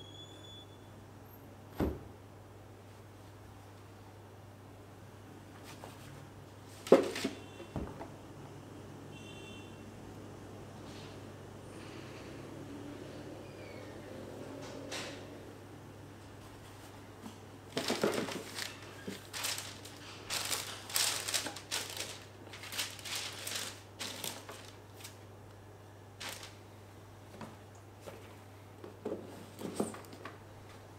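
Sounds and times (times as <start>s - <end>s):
paper crinkling and rustling: 16.5s - 25.3s, 26.2s - 26.6s.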